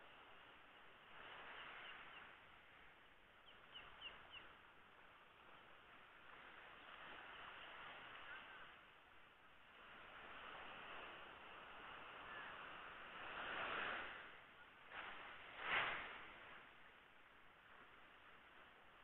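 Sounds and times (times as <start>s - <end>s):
waves washing on beach: 0.0s - 19.0s
bird chirping: 3.4s - 4.6s.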